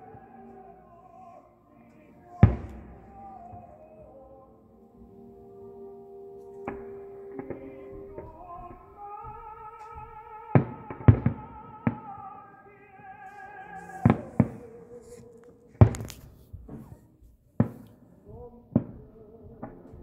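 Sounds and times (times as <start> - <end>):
music with singing voice: 0.0 - 20.0
fireworks bursting: 2.2 - 4.4, 6.4 - 17.0, 17.6 - 18.1.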